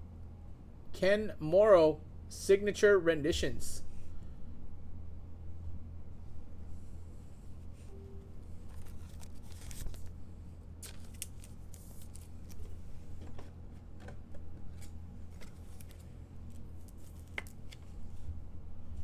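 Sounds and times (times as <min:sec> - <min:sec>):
low steady hum: 0:00.0 - 0:19.0
plastic and card crinkling: 0:08.6 - 0:10.2, 0:10.8 - 0:13.4, 0:14.7 - 0:17.9.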